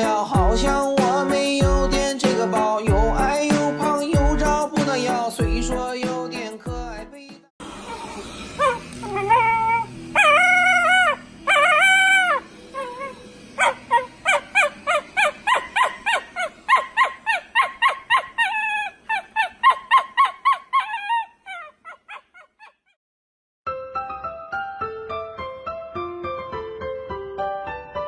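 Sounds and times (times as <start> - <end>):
dog yapping: 7.9 - 23.0
dog yowling barks: 7.9 - 23.0.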